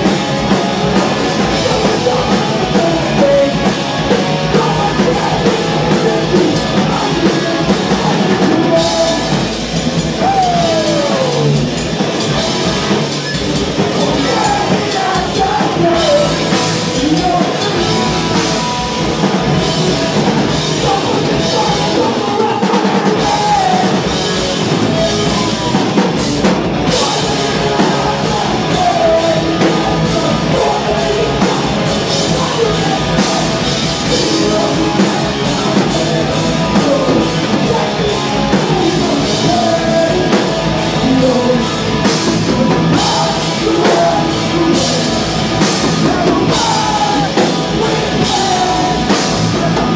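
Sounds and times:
distorted electric guitars: 0.0s - 49.9s
drum kit: 0.0s - 49.9s
person singing: 0.0s - 49.9s.

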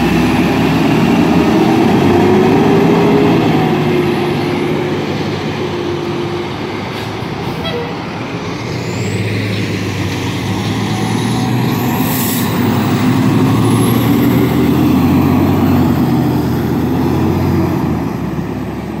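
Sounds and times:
fire engine diesel rumble: 0.0s - 19.0s
air brake hiss: 6.9s - 7.8s.

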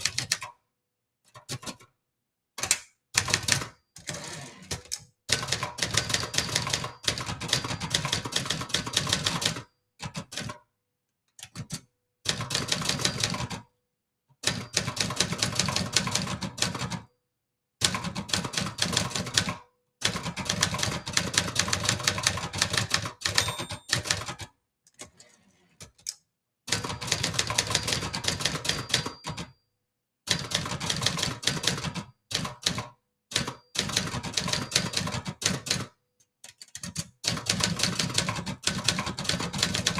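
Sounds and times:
typewriter keys striking: 36.5s - 39.9s.

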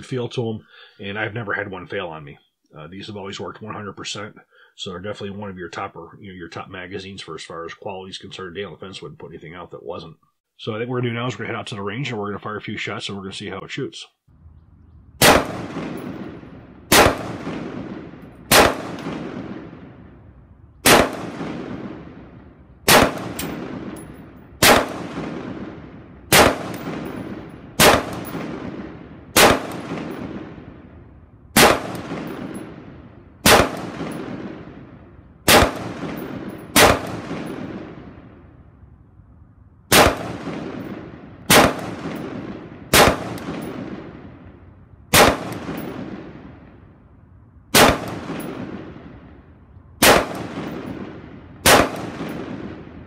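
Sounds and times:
rifle single shots with echo: 15.2s - 38.6s, 39.9s - 47.0s, 47.7s - 53.0s.

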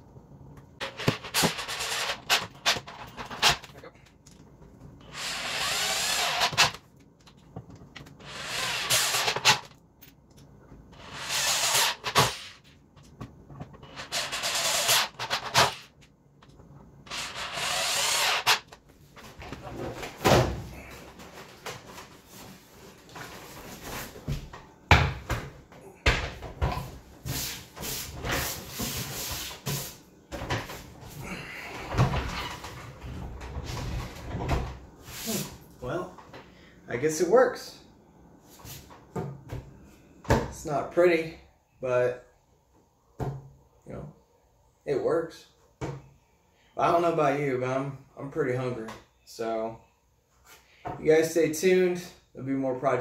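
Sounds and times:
electric drill drilling into wood: 5.1s - 6.8s, 8.3s - 9.5s, 17.1s - 18.6s.

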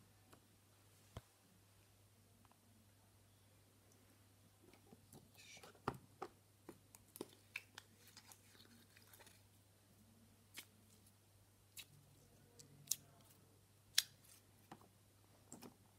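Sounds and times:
wet slime squishes: 6.6s - 9.5s, 10.5s - 11.1s, 11.7s - 14.4s.

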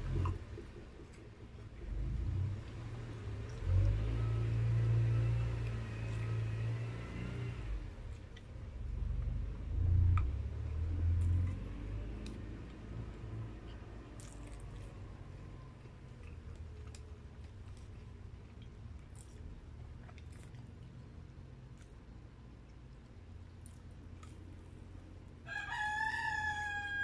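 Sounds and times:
faint steady hum: 0.0s - 27.0s
low engine-like rumble: 0.0s - 27.0s
sharp chewing clicks: 8.1s - 25.0s.

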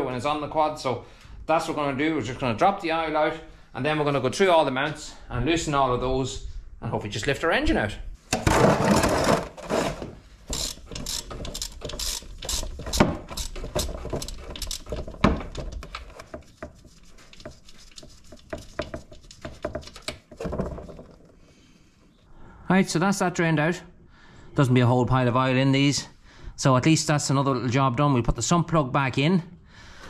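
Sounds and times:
scraping clatter: 8.4s - 16.2s
ratchet wrench clicking: 10.5s - 15.0s.

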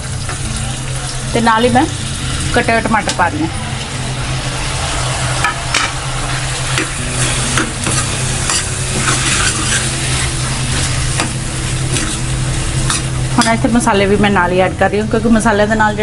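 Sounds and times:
tomatoes sizzling in hot oil: 0.0s - 16.0s
ladle scraping and clinking pan: 5.7s - 13.6s.

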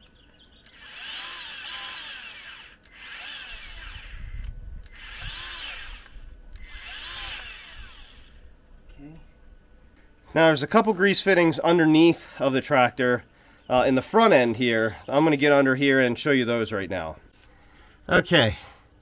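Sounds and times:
grease gun motor whirring: 0.6s - 8.4s.

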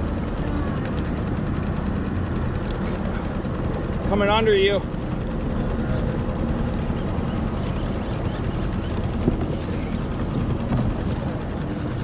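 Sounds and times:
boat motor running: 0.0s - 12.0s
wind buffeting microphone: 6.2s - 12.0s.

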